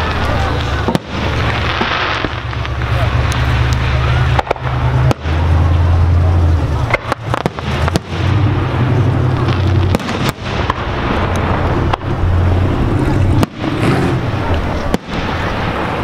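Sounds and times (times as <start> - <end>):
firework bangs: 0.0 - 16.0
steady low rumble: 0.0 - 16.0.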